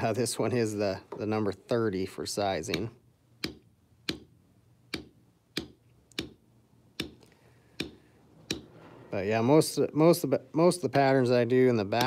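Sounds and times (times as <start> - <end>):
mallet tapping stamp into leather: 2.7 - 4.3, 4.9 - 6.4.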